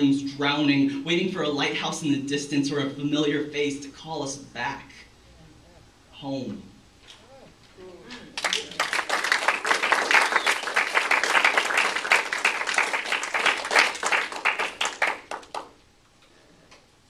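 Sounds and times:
audience applauding: 8.3 - 15.8.

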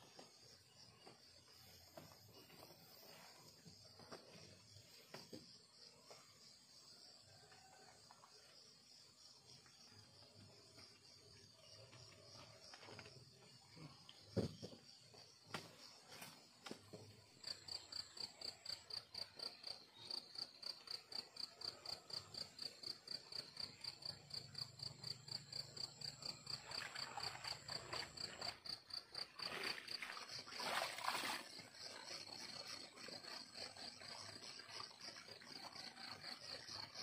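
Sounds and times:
night insects chirping: 17.4 - 37.0.

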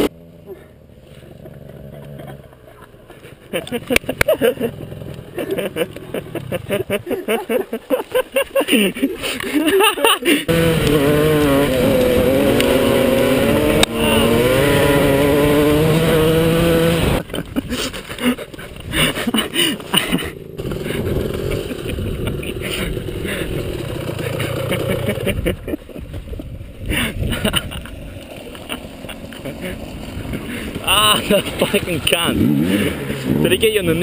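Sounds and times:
dirt bike engine revving: 0.0 - 0.6, 1.2 - 2.8, 3.7 - 7.0, 10.5 - 17.4, 18.9 - 25.6, 27.3 - 34.0.

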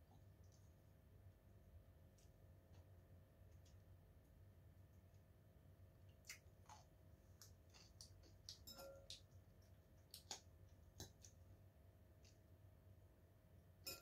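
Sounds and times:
low steady hum: 0.0 - 14.0
quiet chewing: 6.0 - 11.6.

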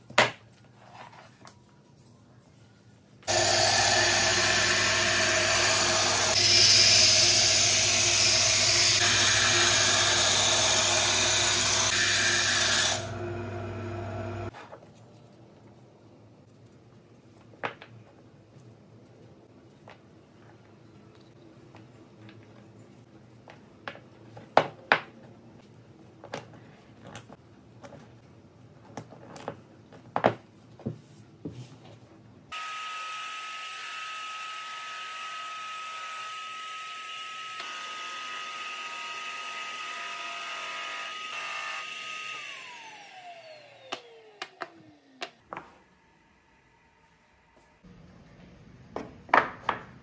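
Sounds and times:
drum sander whining: 3.3 - 14.5.

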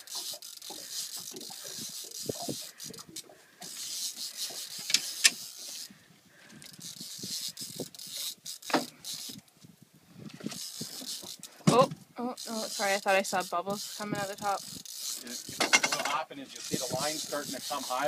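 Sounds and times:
fishing reel buzzing: 0.0 - 9.5, 10.4 - 11.6, 12.2 - 18.0.

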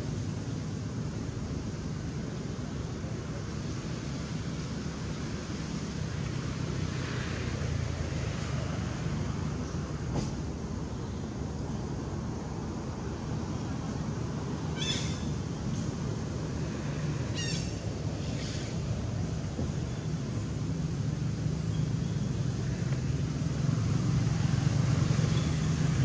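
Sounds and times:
low outdoor rumble: 0.0 - 26.0
high-pitched animal calls: 14.8 - 15.3, 17.4 - 17.8.

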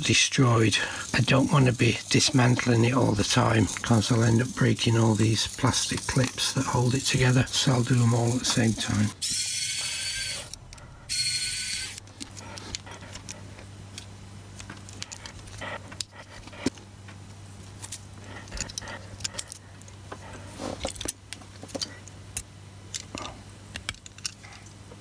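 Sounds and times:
steady low hum: 0.0 - 25.0
clicks and rattles of small plastic parts: 11.9 - 16.8, 17.8 - 20.0, 20.8 - 25.0.

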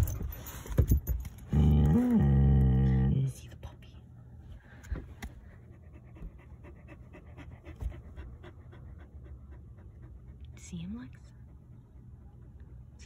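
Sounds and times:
dog panting: 5.4 - 12.8.

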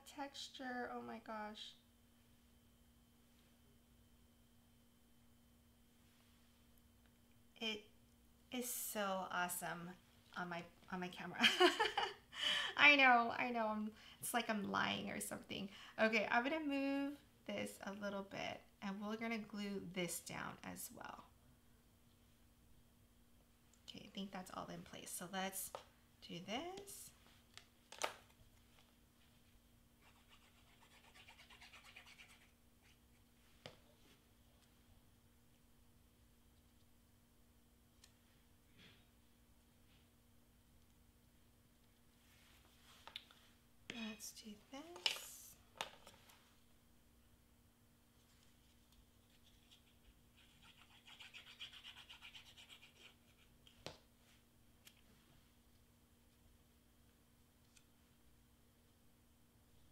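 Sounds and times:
faint steady hum: 0.0 - 59.9
glue bottle scratching on cardstock: 49.3 - 53.5.

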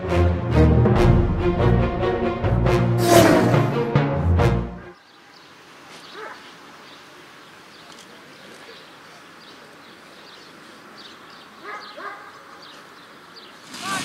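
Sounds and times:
birds chirping: 4.8 - 14.0.

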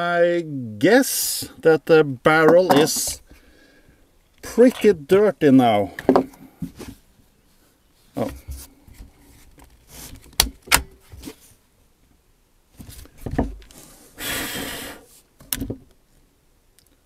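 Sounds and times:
rustling noise: 6.6 - 11.7, 12.7 - 14.2.

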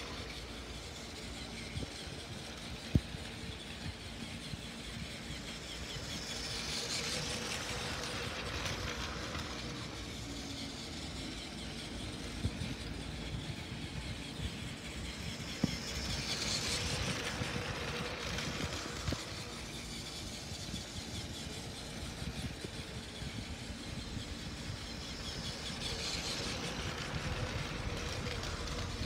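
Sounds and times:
toy train motor whirring: 0.0 - 29.0
toy train wheels rattling: 0.0 - 29.0.

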